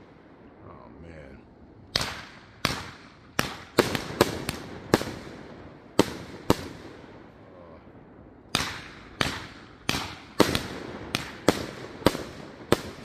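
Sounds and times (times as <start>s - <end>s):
fireworks bangs: 1.9s - 7.6s, 8.5s - 13.0s.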